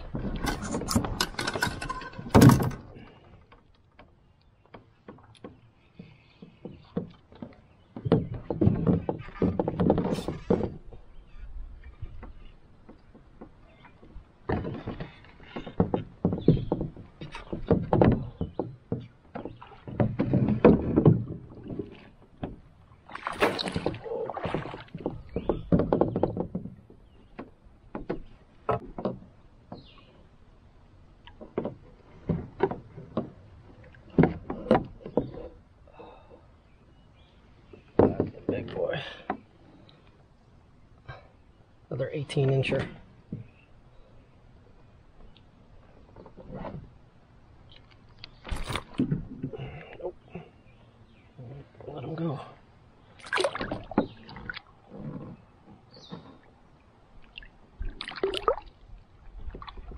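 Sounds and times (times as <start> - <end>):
knocking and bumping in a canoe: 0.0 - 59.9
water splashing: 19.4 - 25.8, 51.9 - 59.9.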